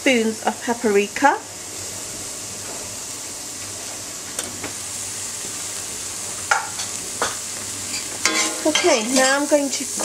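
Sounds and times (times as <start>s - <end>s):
masala sizzling in a pot: 0.0s - 10.0s
metal spoon clinking: 8.2s - 9.4s.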